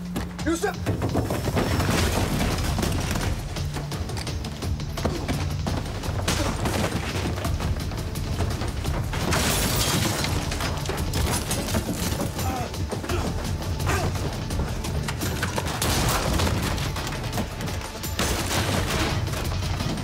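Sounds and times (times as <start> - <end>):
background music: 0.0 - 20.0
men scuffling: 10.5 - 15.7.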